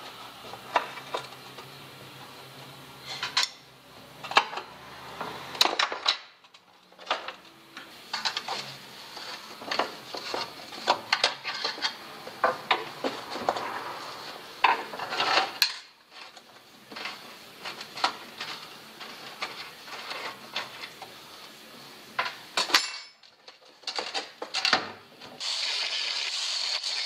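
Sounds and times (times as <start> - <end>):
angle grinder cutting metal: 25.4 - 27.0.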